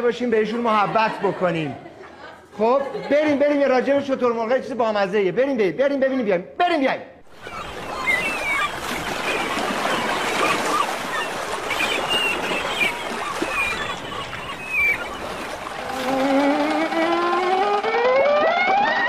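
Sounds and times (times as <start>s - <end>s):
cartoon sea water wash: 7.2s - 19.0s
rising sliding tone: 14.6s - 19.0s.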